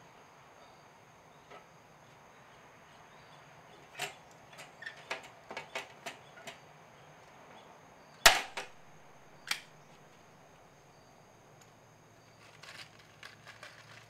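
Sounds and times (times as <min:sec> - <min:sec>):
rivet mandrel snapping pop: 0:08.3 - 0:08.7.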